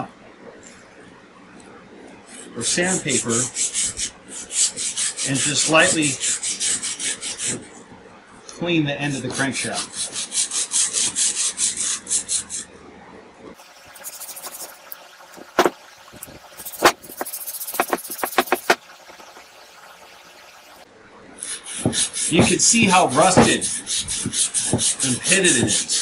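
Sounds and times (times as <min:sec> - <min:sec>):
emery cloth rubbing on steel: 0:13.8 - 0:20.8.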